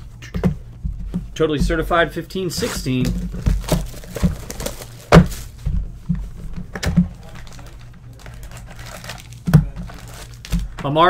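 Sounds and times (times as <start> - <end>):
cardboard box thunk on desk: 3.0 - 5.4.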